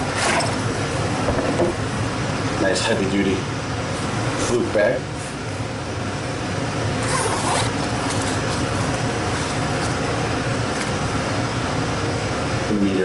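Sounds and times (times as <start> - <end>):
zipper rasping open: 7.0 - 10.0.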